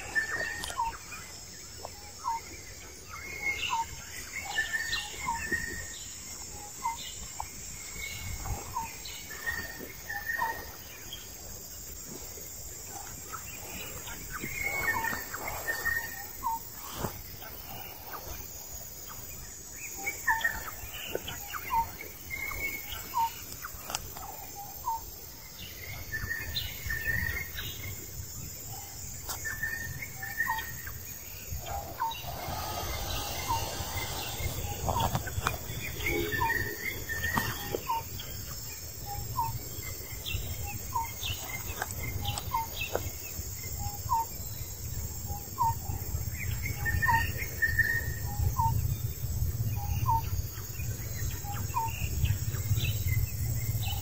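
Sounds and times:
high insect drone: 0:00.0 - 0:54.0
birds chattering: 0:29.5 - 0:38.4
low rumble: 0:31.0 - 0:37.3.

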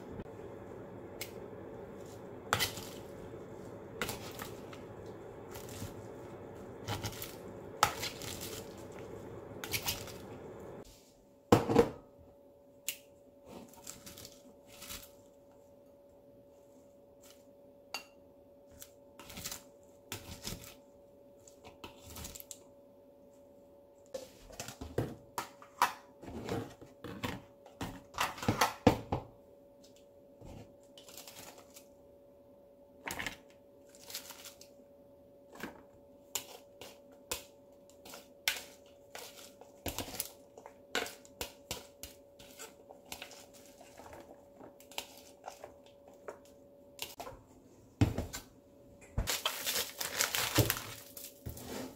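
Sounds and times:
faint steady hum: 0:00.0 - 0:26.2.

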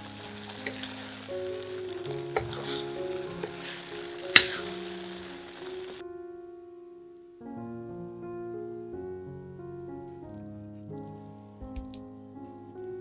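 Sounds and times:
food sizzling in a wok: 0:00.0 - 0:06.0
soft piano music: 0:00.0 - 0:13.0.

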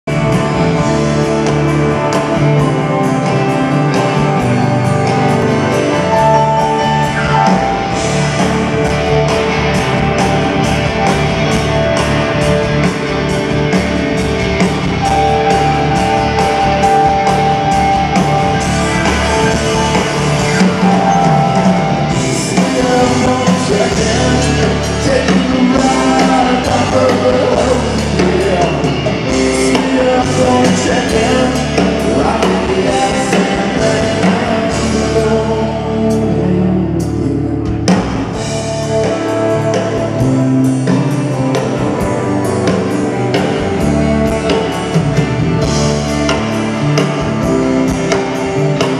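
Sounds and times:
electric guitar: 0:00.0 - 0:48.9
drum kit beat: 0:00.1 - 0:48.9
person singing: 0:18.5 - 0:37.5.

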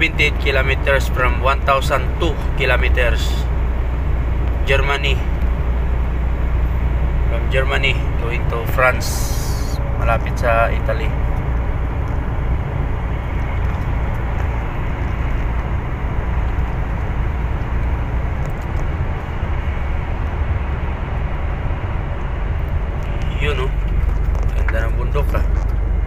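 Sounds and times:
truck engine rumble: 0:00.0 - 0:26.0
tyres on road: 0:00.0 - 0:26.0.

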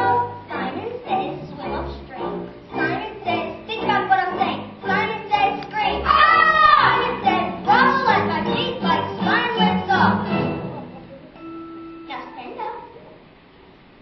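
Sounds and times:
children's chorus singing: 0:00.0 - 0:10.8.

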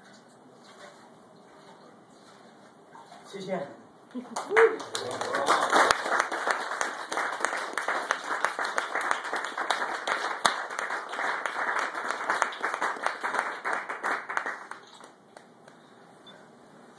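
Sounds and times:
small group applauding: 0:04.2 - 0:15.9.

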